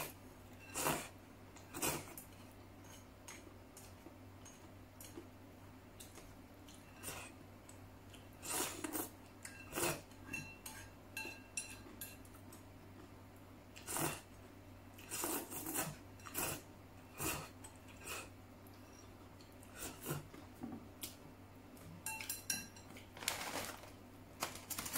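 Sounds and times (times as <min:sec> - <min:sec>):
chopsticks clinking on porcelain bowl: 0:09.4 - 0:12.4, 0:22.0 - 0:23.0.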